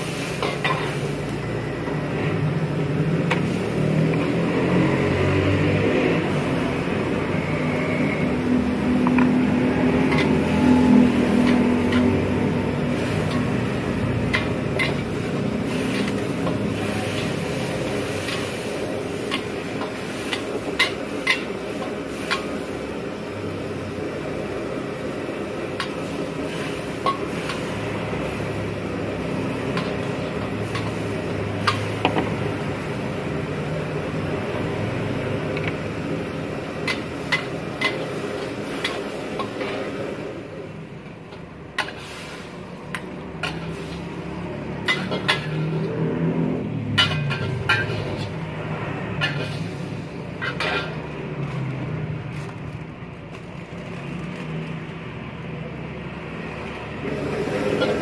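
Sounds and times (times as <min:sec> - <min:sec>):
ladle scraping and knocking in wok: 0:00.0 - 0:01.2, 0:09.0 - 0:22.9, 0:24.6 - 0:33.2, 0:35.2 - 0:40.3, 0:41.2 - 0:46.1, 0:46.8 - 0:51.7, 0:57.0 - 0:58.0
cooking hiss: 0:00.0 - 0:58.0.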